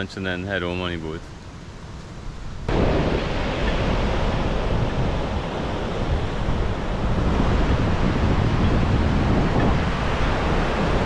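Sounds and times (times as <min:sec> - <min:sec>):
ocean surf: 0:00.3 - 0:11.0
wind buffeting microphone: 0:02.3 - 0:11.0.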